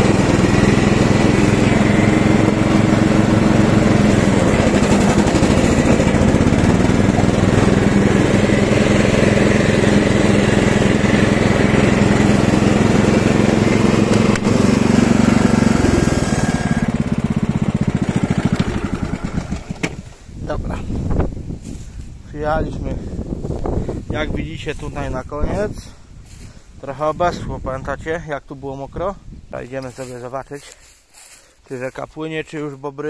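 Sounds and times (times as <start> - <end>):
lawn tractor engine running: 0.0 - 20.2.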